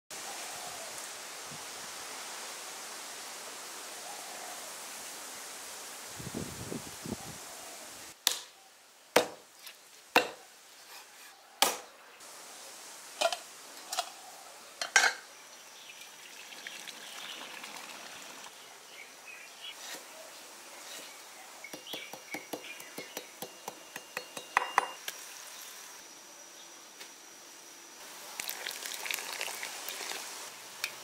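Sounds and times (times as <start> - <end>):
cleaver chopping on wooden block: 9.2 - 9.4, 10.2 - 10.4, 21.7 - 25.0
water pouring into wok: 15.8 - 18.5, 28.4 - 30.5.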